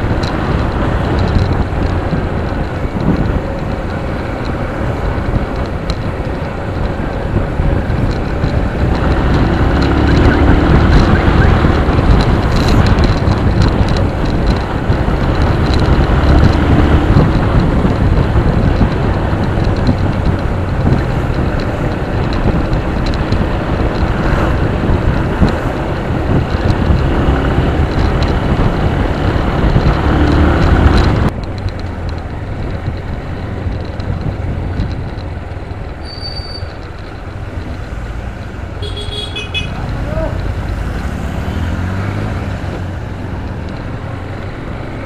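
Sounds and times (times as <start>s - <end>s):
motorcycle engine rumble: 0.0s - 45.0s
wind rush on microphone: 0.0s - 45.0s.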